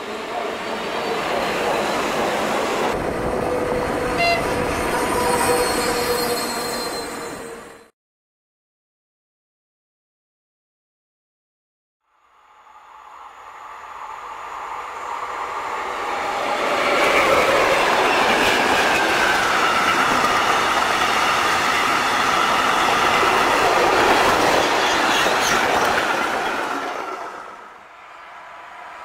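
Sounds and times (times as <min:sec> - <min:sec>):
freight train passing: 0:00.0 - 0:07.9, 0:12.3 - 0:29.0.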